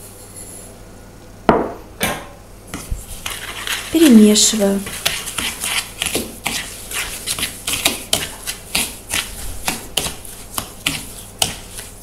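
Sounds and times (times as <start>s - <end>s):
spoon beating eggs in plastic bowl: 2.7s - 12.0s.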